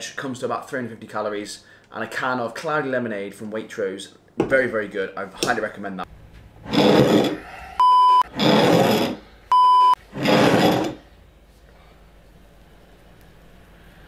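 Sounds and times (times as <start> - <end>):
high-pitched bleep tones: 7.8 - 8.2, 9.5 - 10.0.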